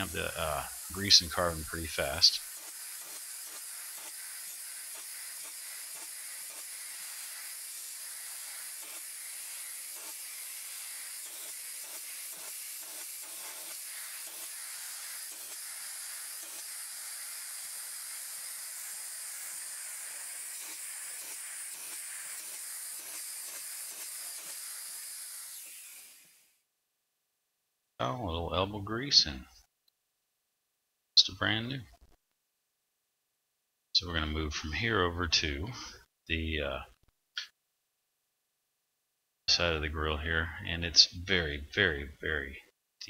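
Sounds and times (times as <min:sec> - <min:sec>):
steam cleaner hissing: 0:00.0 - 0:26.6.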